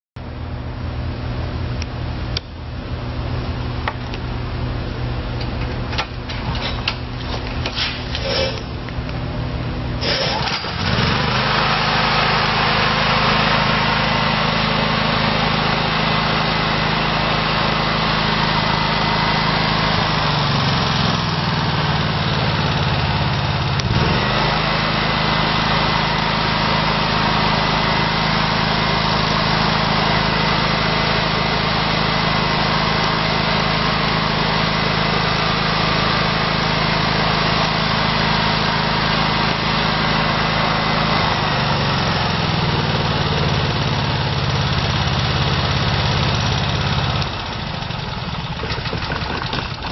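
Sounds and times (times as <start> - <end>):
generator engine running: 0.2 - 49.9
recoil pull-start: 10.0 - 13.8, 45.8 - 49.9.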